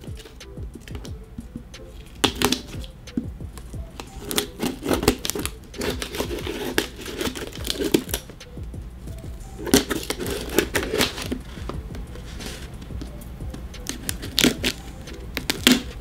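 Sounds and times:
tape scraping and crinkling: 0.0 - 8.4, 9.1 - 16.0
scissors snipping tape: 2.0 - 8.5, 9.6 - 16.0.

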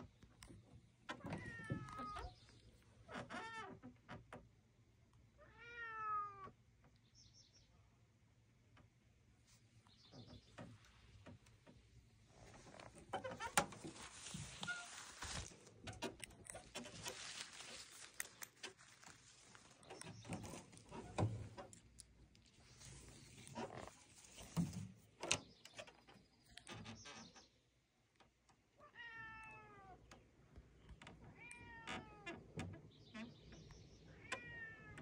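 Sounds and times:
cat meowing: 5.4 - 6.5, 28.8 - 30.0, 34.2 - 35.0.

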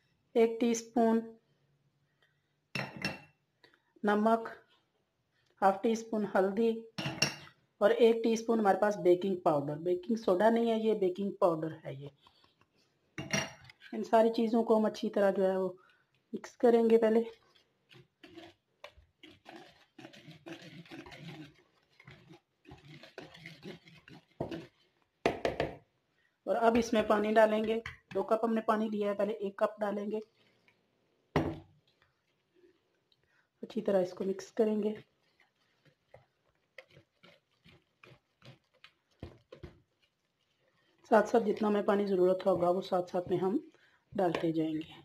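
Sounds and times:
wire whisk scraping in plastic bowl: 17.1 - 24.9, 34.9 - 41.3.

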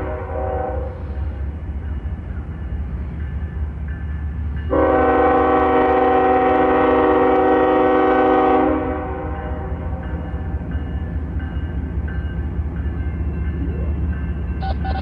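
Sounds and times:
locomotive air horn blast: 0.0 - 1.2, 4.7 - 9.7.

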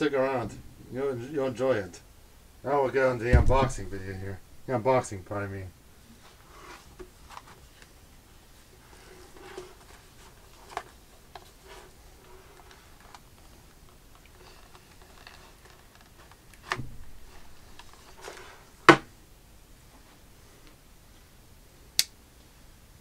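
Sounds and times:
sharp knock: 3.3 - 4.0
cardboard box rustling: 8.6 - 19.0.

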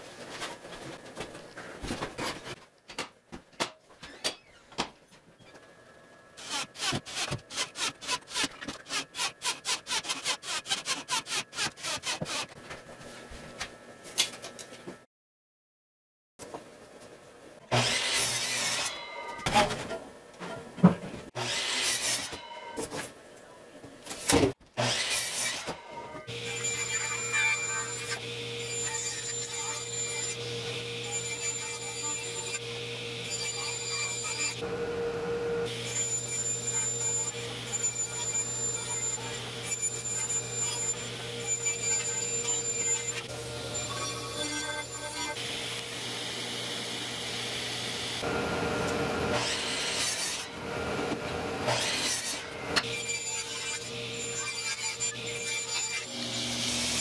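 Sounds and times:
power miter saw cutting boards: 24.8 - 54.4, 55.0 - 57.0.

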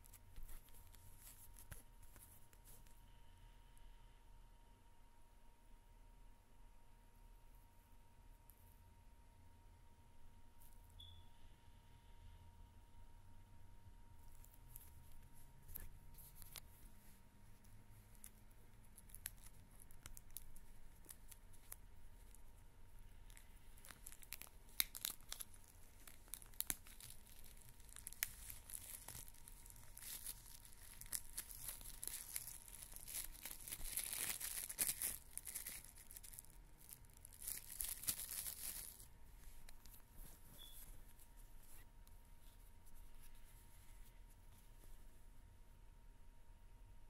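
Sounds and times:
cellophane wrap crackling: 17.6 - 40.8.

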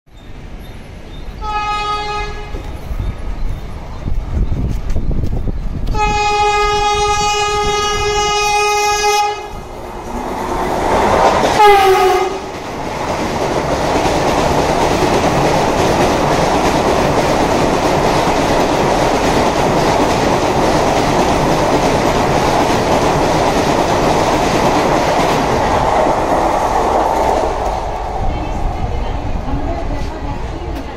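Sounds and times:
wheels rattling on rail: 0.1 - 30.9
train passing with roar: 0.2 - 30.9
train horn: 1.4 - 2.7, 5.9 - 9.6, 11.6 - 12.5.

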